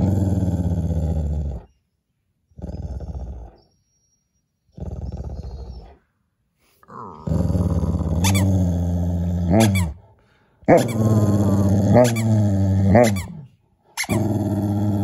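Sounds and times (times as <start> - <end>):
dog growling in play: 0.0 - 1.7, 2.5 - 3.6, 4.7 - 6.0, 6.8 - 10.0, 10.7 - 15.0.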